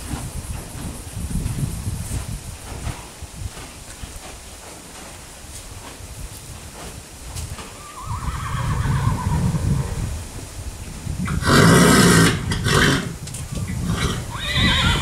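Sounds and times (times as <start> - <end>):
horse whinnying: 7.7 - 10.0, 11.3 - 13.2, 13.8 - 15.0.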